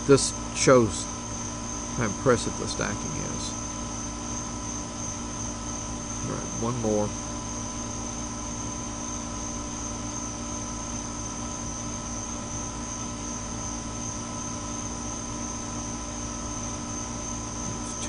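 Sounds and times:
air conditioner humming: 0.0s - 18.0s.

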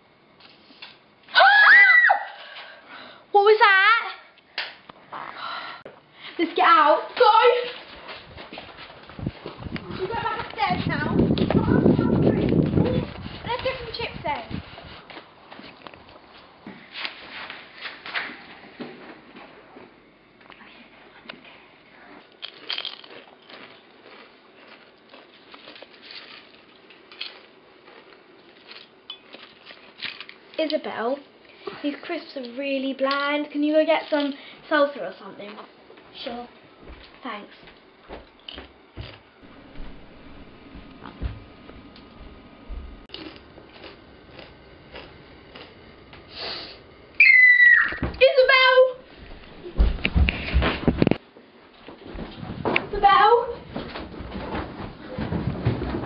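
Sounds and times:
girl screaming: 1.3s - 2.5s, 47.2s - 48.1s
crisps crunching: 22.3s - 30.5s, 43.1s - 45.8s.

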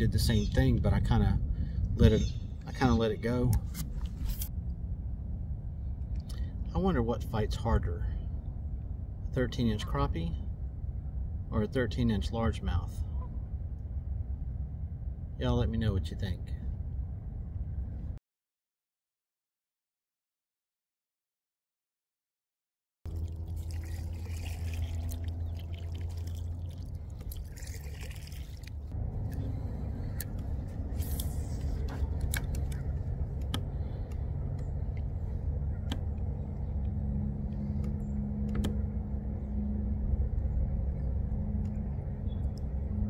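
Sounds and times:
water sloshing around kayak: 23.1s - 30.6s.

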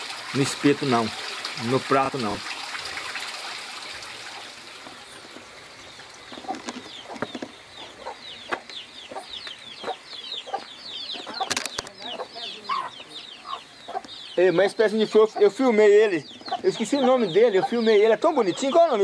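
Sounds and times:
running water: 0.0s - 8.3s
chickens peeping and clucking: 4.9s - 19.0s.

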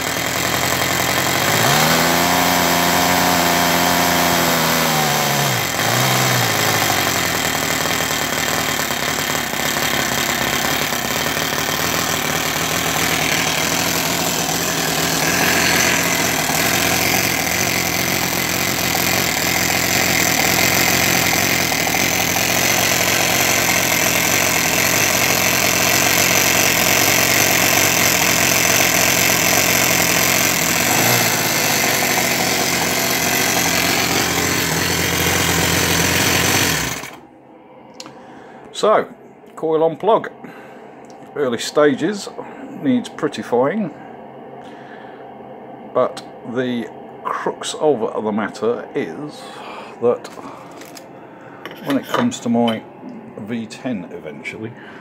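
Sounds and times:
model engine running: 0.0s - 37.2s.

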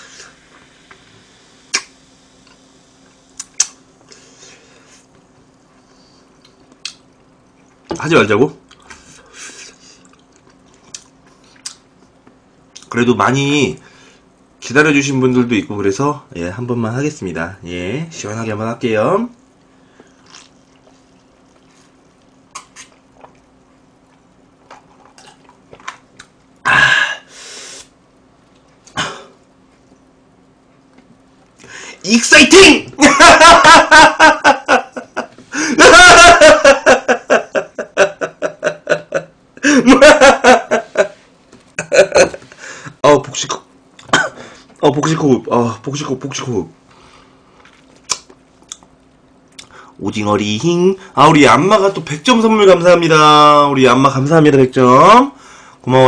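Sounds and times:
faint steady hum: 0.0s - 56.0s
mouth clicks: 1.7s - 1.9s, 3.4s - 3.8s, 48.0s - 48.9s
man burping: 26.6s - 27.3s, 28.9s - 29.4s, 44.0s - 44.4s
breathy exhale: 31.6s - 32.0s, 55.4s - 55.8s.

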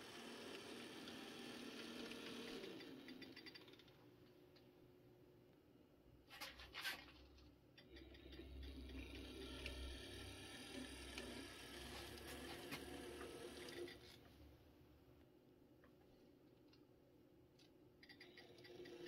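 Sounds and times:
model train motor hum: 0.0s - 3.6s, 8.1s - 14.0s.

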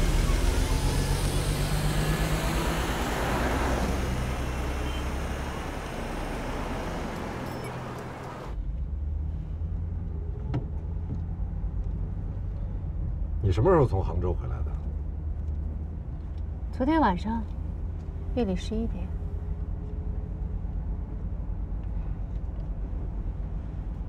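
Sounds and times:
car engine running: 0.0s - 8.6s
road noise: 0.0s - 24.0s.

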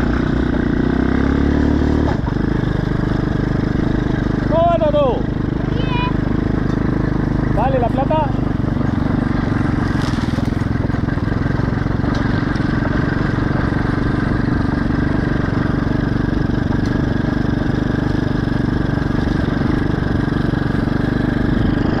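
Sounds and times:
small engine running: 0.0s - 22.0s.

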